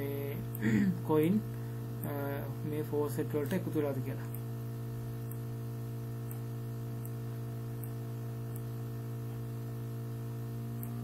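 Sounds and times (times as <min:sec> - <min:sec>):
electrical hum: 0:00.0 - 0:11.0
faint high ticks: 0:06.2 - 0:07.2, 0:07.8 - 0:08.7.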